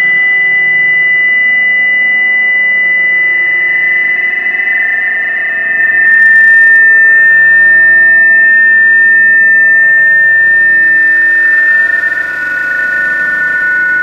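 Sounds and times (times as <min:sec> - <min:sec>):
high-pitched electronic drone: 0:00.0 - 0:14.0.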